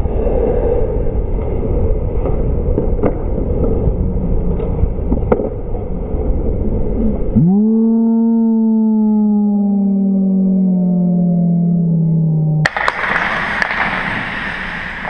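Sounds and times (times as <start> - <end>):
wind rush and skating on ice: 0.0 - 7.4, 12.6 - 15.0
hockey stick or puck clacks: 4.6 - 5.6, 12.7 - 14.5.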